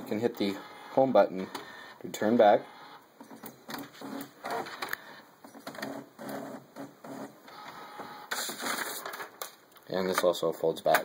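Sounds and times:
printer whirring pulses: 0:00.4 - 0:01.9, 0:02.5 - 0:03.0, 0:04.0 - 0:04.9, 0:05.7 - 0:08.6.

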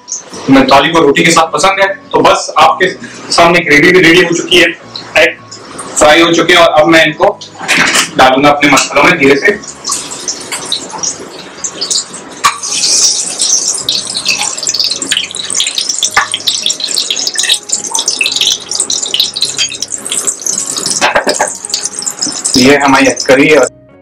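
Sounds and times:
hot oil sizzling in a frying pan: 0:09.4 - 0:23.7.

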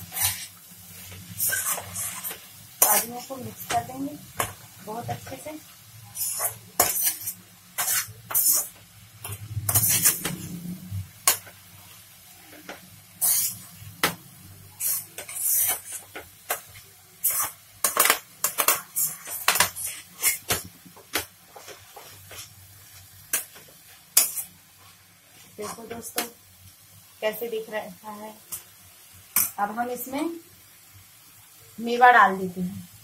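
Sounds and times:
steel spoon scraping a pan: 0:00.0 - 0:03.4, 0:06.0 - 0:10.6, 0:12.5 - 0:13.9, 0:14.7 - 0:20.6, 0:23.3 - 0:25.0.

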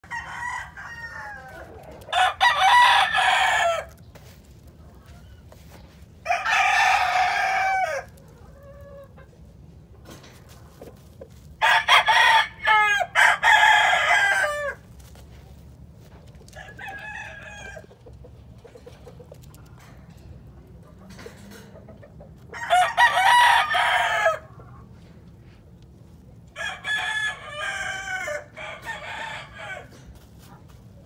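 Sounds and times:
roosters crowing: 0:00.0 - 0:04.4, 0:05.1 - 0:09.4, 0:11.4 - 0:15.4, 0:16.2 - 0:18.2, 0:22.4 - 0:25.2, 0:26.5 - 0:30.2.

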